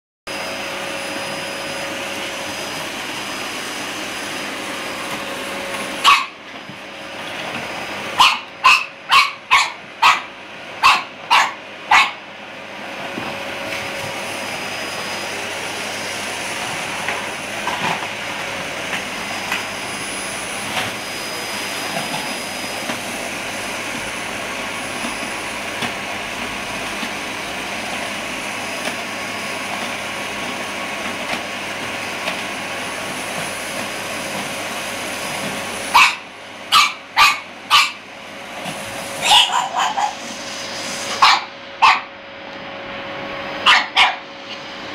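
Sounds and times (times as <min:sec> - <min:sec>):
vacuum cleaner running: 0:00.3 - 0:44.9
dog barking: 0:06.0 - 0:06.4, 0:08.2 - 0:12.2, 0:35.9 - 0:38.0, 0:39.2 - 0:40.2, 0:41.2 - 0:42.1, 0:43.6 - 0:44.3.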